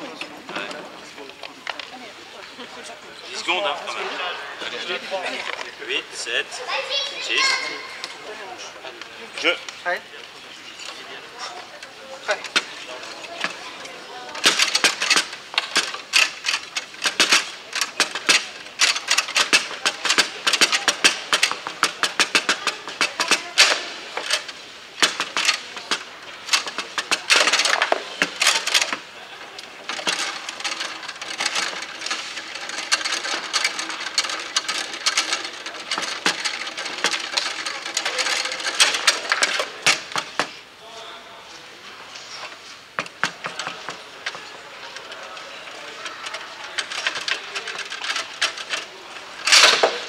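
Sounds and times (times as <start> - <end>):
rods knocking: 14.4 - 40.6, 43.0 - 44.4.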